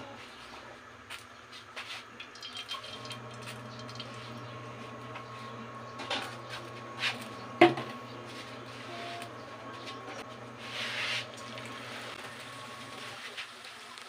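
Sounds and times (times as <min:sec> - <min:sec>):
steady low hum: 0:02.6 - 0:13.2.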